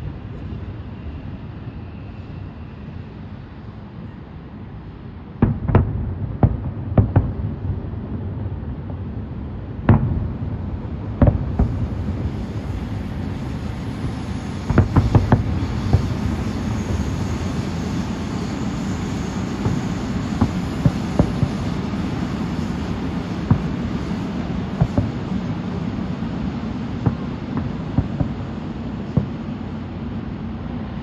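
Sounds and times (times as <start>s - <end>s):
low rumble of explosions: 0.0s - 31.0s
fireworks bangs: 5.4s - 30.0s.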